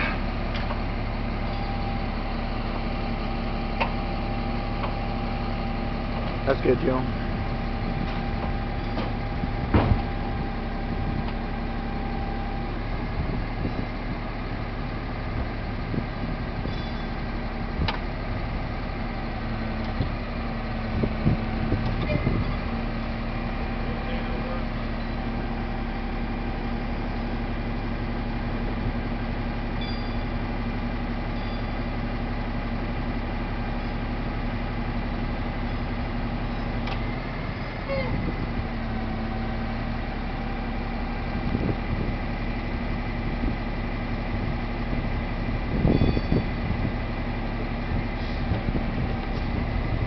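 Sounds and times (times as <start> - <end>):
diesel engine running: 0.0 - 50.0
loud clunks: 8.9 - 10.1.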